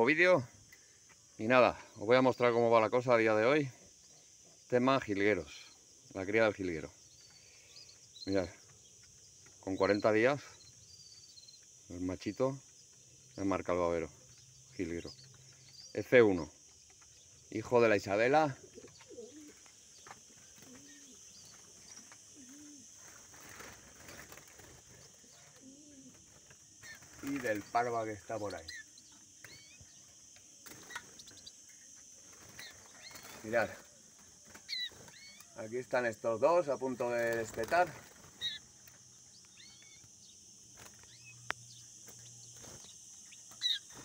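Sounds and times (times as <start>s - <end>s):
small birds chirping: 0.0s - 44.0s
steady high hiss: 0.0s - 44.0s
dove cooing: 18.5s - 23.9s, 25.0s - 27.6s.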